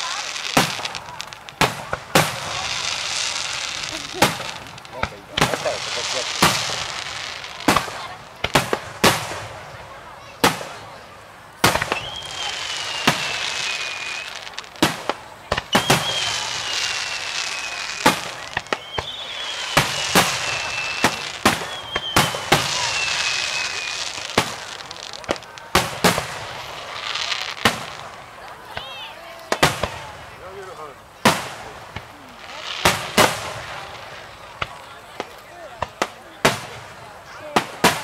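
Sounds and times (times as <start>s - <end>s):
firework whistles: 0.0s - 9.5s, 11.6s - 28.2s
firework bangs: 0.0s - 38.0s
firework crackle: 0.0s - 38.0s.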